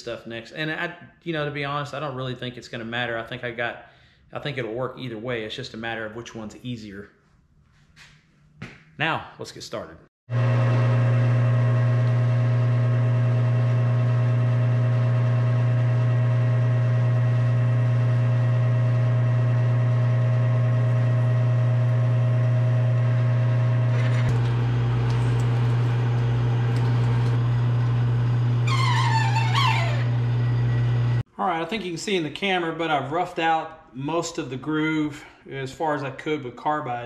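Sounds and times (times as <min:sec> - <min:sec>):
metal lathe humming: 0:10.3 - 0:31.2.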